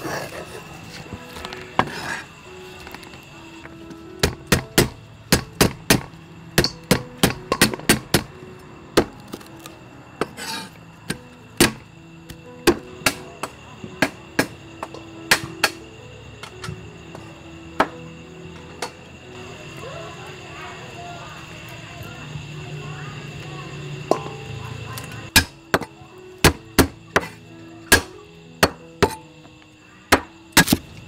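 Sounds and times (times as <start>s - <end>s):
cleaver chopping on wooden block: 4.2s - 8.3s, 11.6s - 11.8s, 30.2s - 30.8s.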